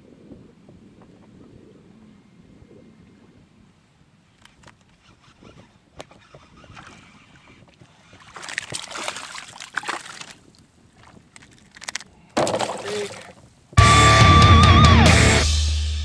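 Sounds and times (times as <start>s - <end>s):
fish splashing in water: 6.1s - 13.4s.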